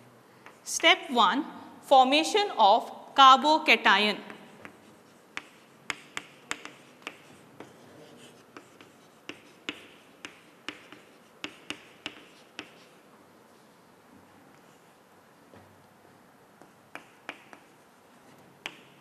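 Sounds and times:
chalk tapping on chalkboard: 4.3 - 13.1, 16.6 - 19.0.

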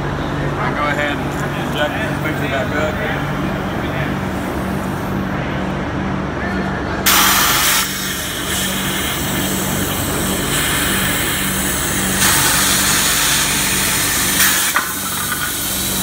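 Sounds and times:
steady low hum: 0.0 - 16.0
compressed air hissing: 7.1 - 16.0.

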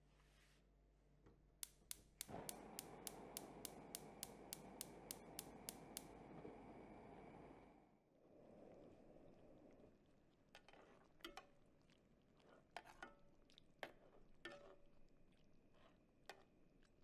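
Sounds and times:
spark igniter clicking: 1.6 - 6.4
gas flame hissing: 1.6 - 7.9.

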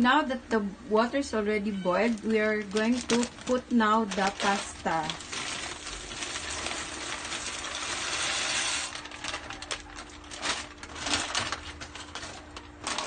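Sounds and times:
dry pasta pouring into pot: 4.2 - 11.2.

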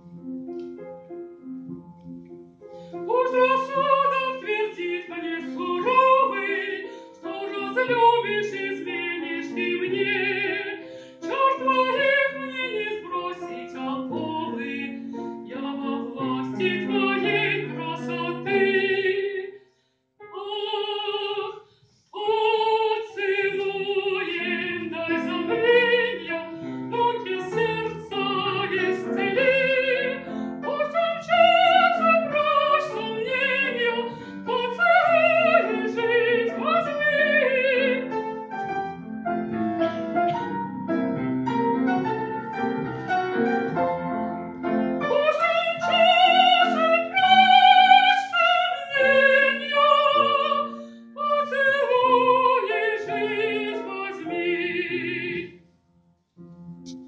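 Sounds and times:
grand piano: 0.0 - 19.5, 20.2 - 57.0
woman singing with vibrato: 3.1 - 19.5, 20.3 - 21.6, 22.2 - 38.2, 45.1 - 55.5.

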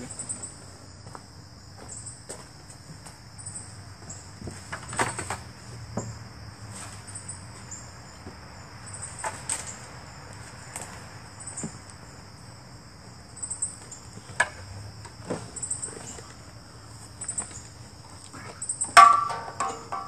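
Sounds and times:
crickets chirping: 0.0 - 20.0
knocks and clatters of handling: 18.5 - 20.0.

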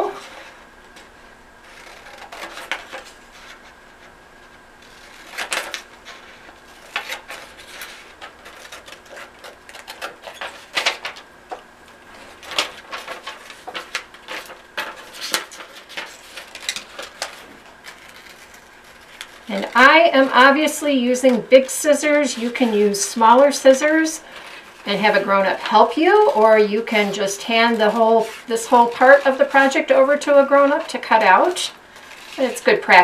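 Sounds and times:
scissors snipping paper: 6.8 - 11.2, 12.3 - 23.8, 24.4 - 33.0.

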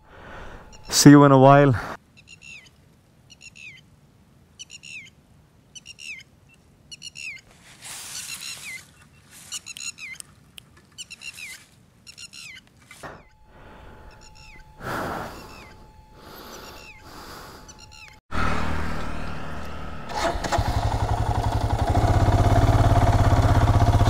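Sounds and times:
bird calling: 0.0 - 3.9, 4.6 - 18.2.

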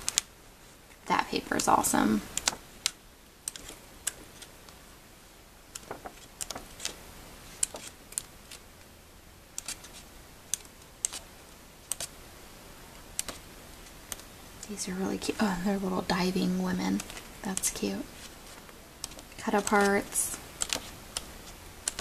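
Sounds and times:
paper pages flipping: 3.5 - 4.5, 5.7 - 8.6, 9.6 - 10.1, 18.1 - 22.0.

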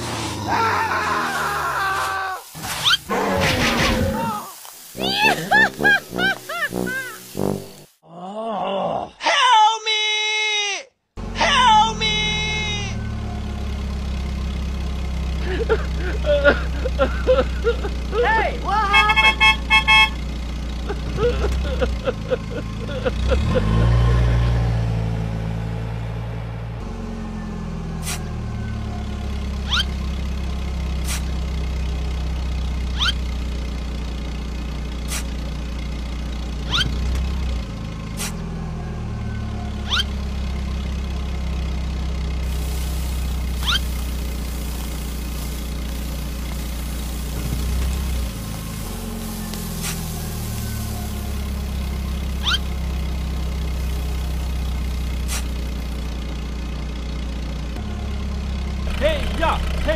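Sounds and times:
sharp rising squeaks: 2.5 - 4.3, 29.6 - 30.0, 32.9 - 33.3, 36.6 - 37.1, 39.8 - 40.2, 43.5 - 44.1, 47.4 - 52.9
heavy machine engine drone: 12.2 - 59.9.

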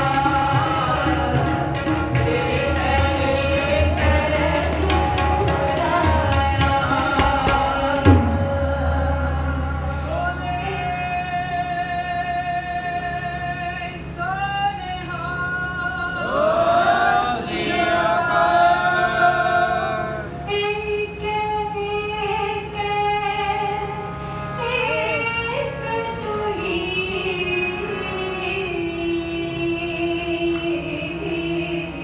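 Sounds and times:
harmonium drone: 0.0 - 32.0
tabla: 0.0 - 32.0
woman singing: 20.5 - 24.0, 24.6 - 32.0.

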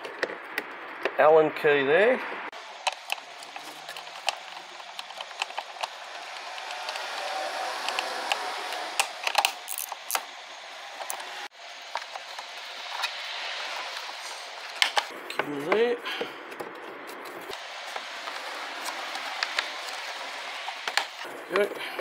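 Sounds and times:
plastic parts clicking and knocking: 2.8 - 7.3, 7.9 - 10.3.

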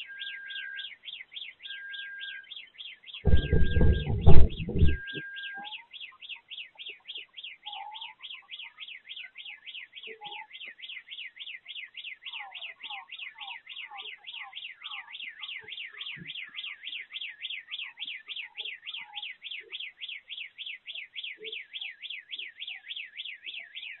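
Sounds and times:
distant car alarm wailing: 0.0 - 7.4
faint chirps: 0.0 - 24.0
pops: 3.3 - 5.2.

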